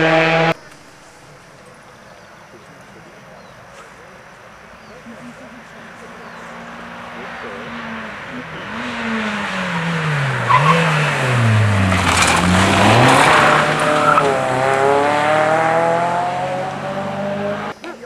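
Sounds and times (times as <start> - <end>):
rally car engine: 0.0 - 1.8, 4.8 - 17.8
tyres sliding on gravel: 0.6 - 15.0.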